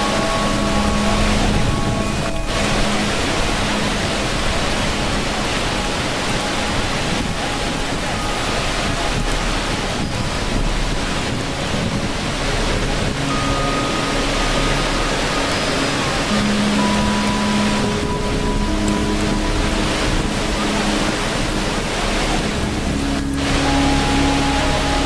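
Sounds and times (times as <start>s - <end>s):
rushing water: 0.0s - 25.0s
soft held music notes: 0.0s - 25.0s.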